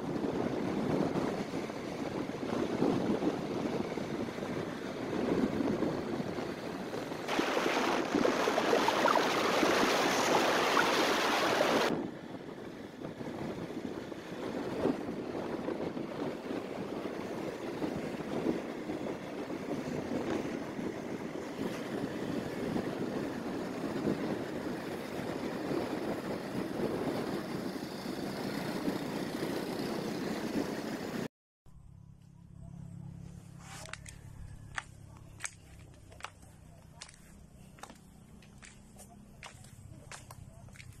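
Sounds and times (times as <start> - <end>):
wind rushing over microphone: 0.0 - 31.3.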